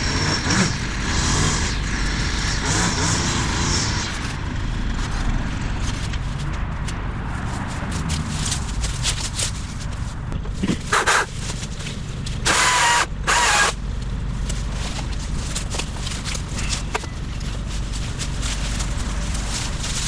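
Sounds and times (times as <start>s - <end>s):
chainsaw revving: 0.0s - 4.4s, 12.4s - 13.8s
steady low rumble: 4.0s - 20.0s.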